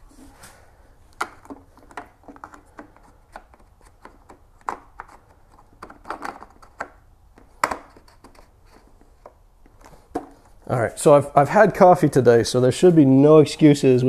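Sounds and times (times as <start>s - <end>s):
plastic clicks and rubbing: 1.1s - 10.6s.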